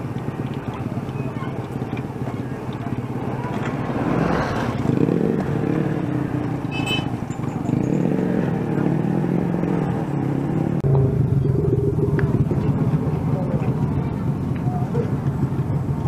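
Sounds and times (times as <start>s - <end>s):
motorcycle engines droning: 0.0s - 16.0s.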